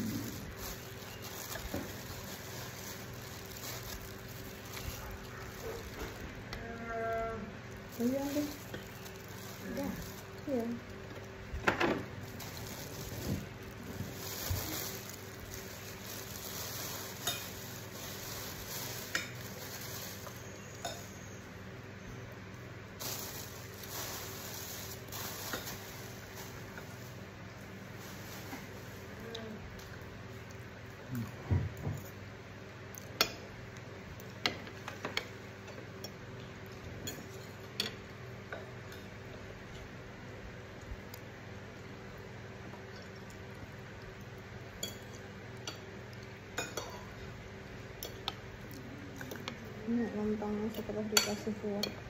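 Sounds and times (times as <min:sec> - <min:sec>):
background hiss and low hum: 0:00.0 - 0:52.0
mouth sounds of eating: 0:29.1 - 0:31.5.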